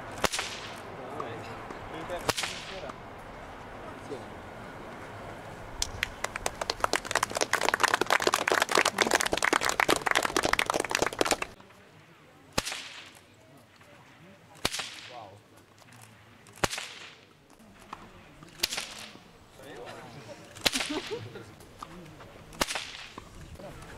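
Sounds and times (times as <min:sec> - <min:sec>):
bullwhip cracking: 0:00.0 - 0:00.9, 0:02.2 - 0:03.0, 0:12.5 - 0:13.2, 0:14.6 - 0:15.3, 0:16.6 - 0:17.3, 0:18.5 - 0:19.3, 0:20.6 - 0:21.2, 0:22.5 - 0:23.3
audience clapping: 0:05.8 - 0:11.6.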